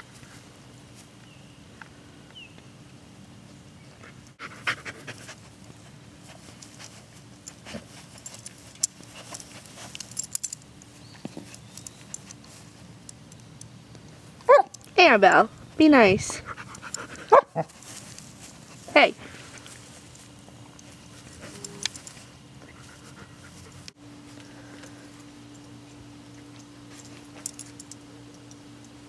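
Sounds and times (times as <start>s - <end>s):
puppy sniffing and panting: 4.0s - 10.4s, 16.2s - 24.0s.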